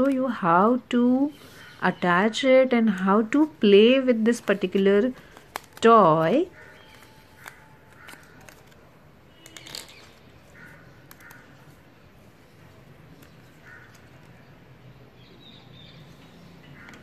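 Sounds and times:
sticker sheet rustling: 2.9 - 8.8
crows cawing: 6.5 - 8.6, 10.5 - 11.6, 13.6 - 14.2, 16.6 - 17.0.

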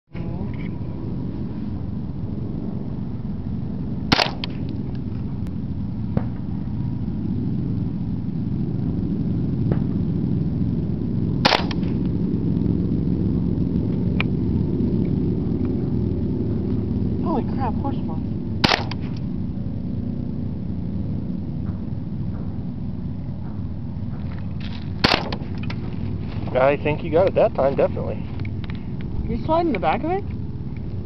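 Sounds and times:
wind rumble on microphone: 0.1 - 31.0
rifle shots: 4.1 - 4.6, 11.4 - 12.0, 18.6 - 19.2, 25.0 - 25.6.

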